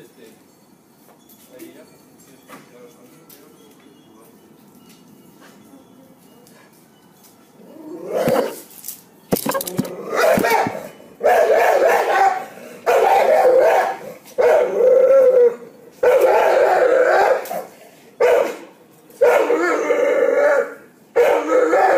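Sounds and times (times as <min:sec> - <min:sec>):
dog barking: 0:10.2 - 0:14.8, 0:16.0 - 0:19.8, 0:20.6 - 0:21.9.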